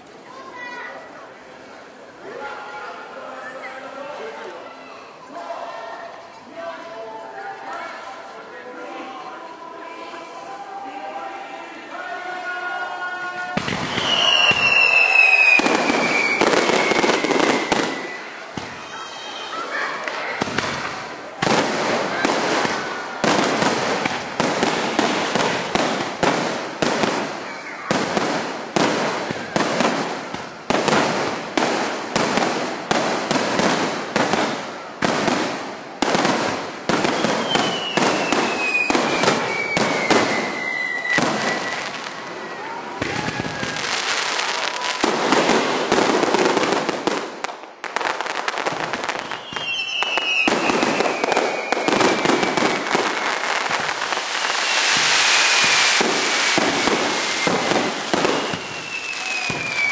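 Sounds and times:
fireworks bursting: 0:13.1 - 0:59.9
firework whistle falling: 0:13.6 - 0:19.6, 0:37.1 - 0:42.0, 0:49.2 - 0:59.9.

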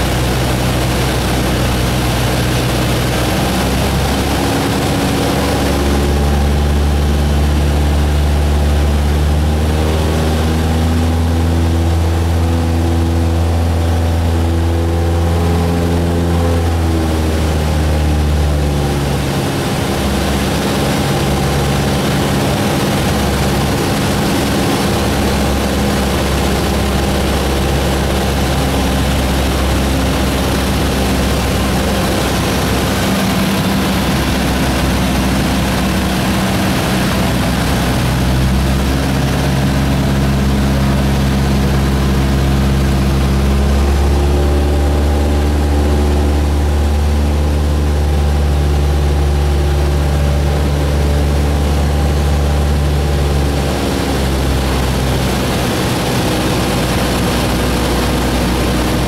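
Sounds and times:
light plane engine droning: 0:00.0 - 0:59.0
rush of air noise: 0:15.3 - 0:59.0.

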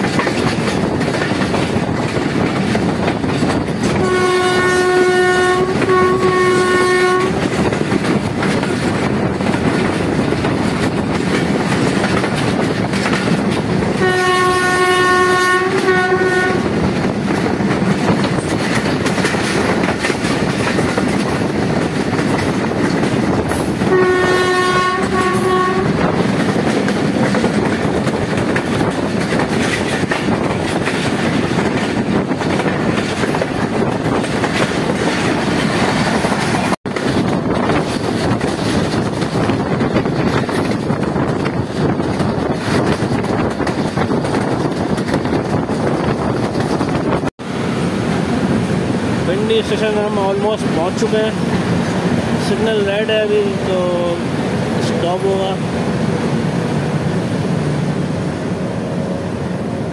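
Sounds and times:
train wheels on rails: 0:00.0 - 0:59.9
locomotive horn blasts: 0:03.9 - 0:07.5, 0:14.0 - 0:16.8, 0:23.8 - 0:26.1.

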